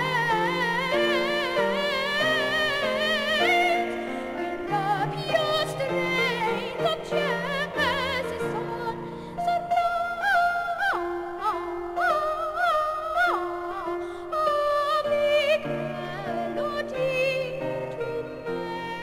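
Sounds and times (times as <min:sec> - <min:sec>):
boy singing with vibrato: 0:00.0 - 0:19.0.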